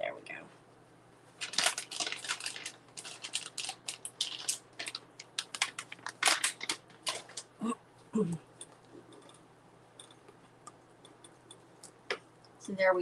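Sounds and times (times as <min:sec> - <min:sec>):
plastic bag crinkling: 0:01.4 - 0:07.6.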